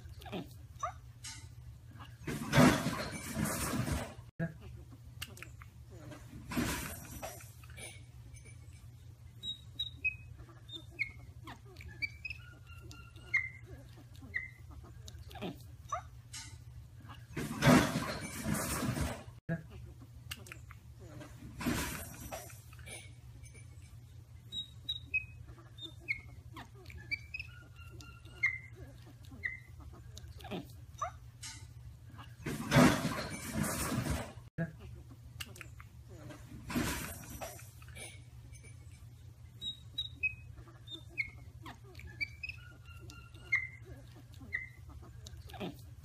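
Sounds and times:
monkeys chirping and squeaking: 0.0s - 46.0s
baby monkeys chirping: 9.3s - 16.2s, 24.4s - 31.2s, 37.8s - 45.8s.

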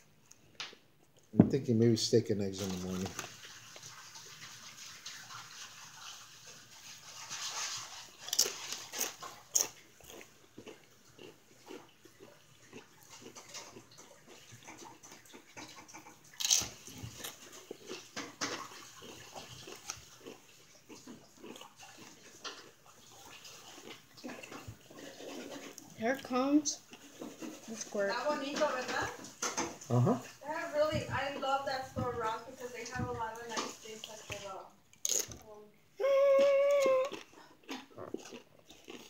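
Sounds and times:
chewing and mouth smacking: 7.3s - 27.8s, 34.3s - 35.5s, 36.3s - 39.0s.

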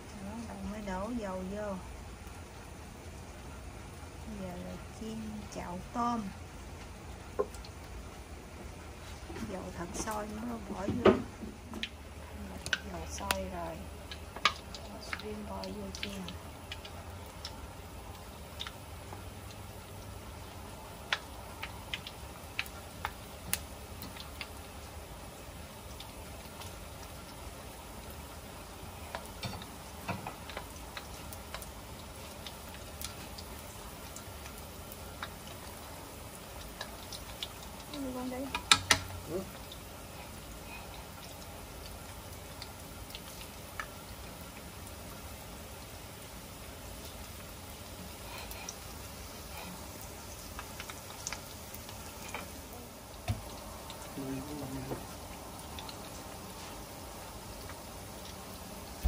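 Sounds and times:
food deep-frying in oil: 0.0s - 59.0s
oil crackling and popping: 0.0s - 59.0s
thump: 10.9s - 11.5s.

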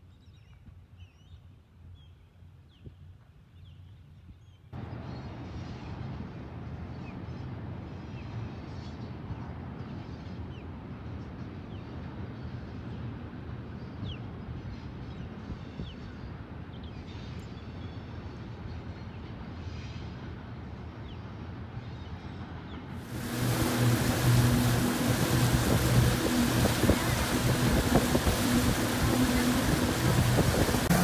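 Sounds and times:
distant freight train rumble: 4.8s - 31.0s.

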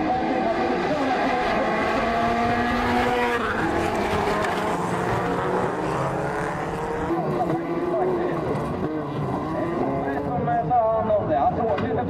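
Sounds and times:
race car engines: 0.0s - 12.0s.

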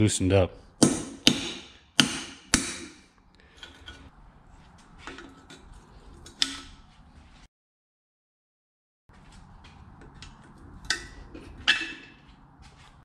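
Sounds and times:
hammer striking metal punch: 0.8s - 3.1s.

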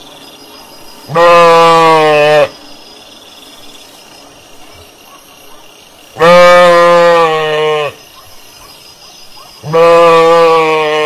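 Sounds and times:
sheep bleating: 1.1s - 2.5s, 6.2s - 8.0s, 9.6s - 11.0s.

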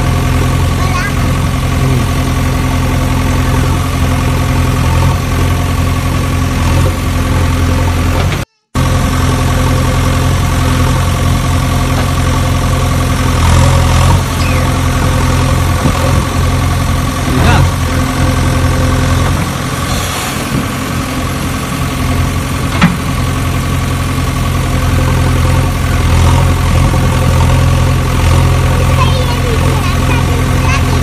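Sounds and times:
engine idling: 0.0s - 31.0s.

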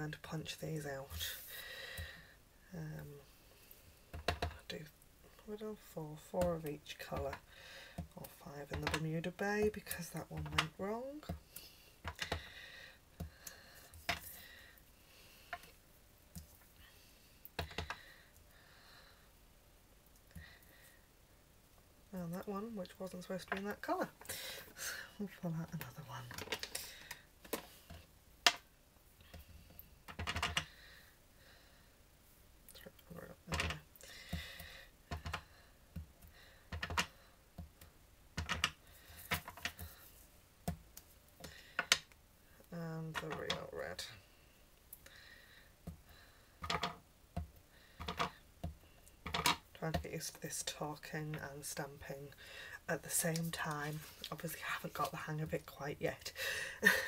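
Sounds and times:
rubber stamp knocks and clicks: 30.1s - 30.7s, 38.4s - 39.9s.

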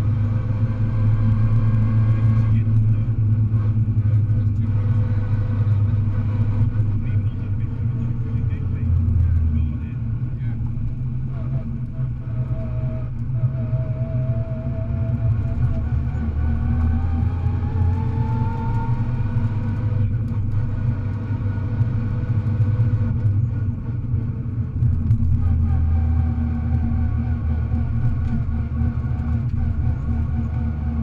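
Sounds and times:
car engine rumbling under load: 0.0s - 31.0s
rising whine: 0.0s - 31.0s.

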